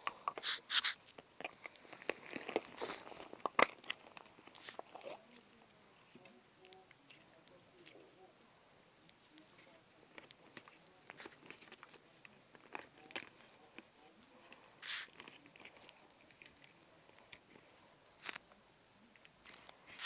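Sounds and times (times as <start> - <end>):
short hiss: 0.4 - 1.0, 14.8 - 15.1.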